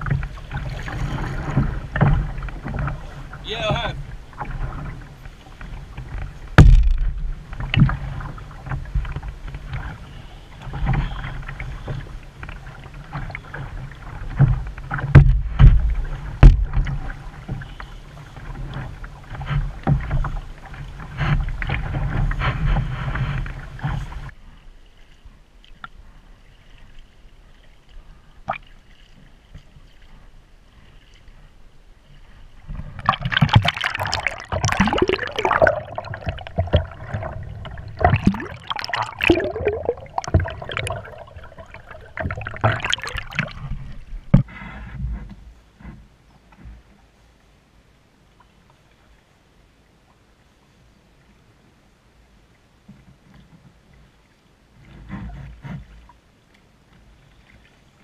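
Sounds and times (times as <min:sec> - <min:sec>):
underwater gurgling: 0:00.0 - 0:17.8, 0:32.6 - 0:44.4
water slapping against canoe hull: 0:00.0 - 0:31.4, 0:32.1 - 0:46.9.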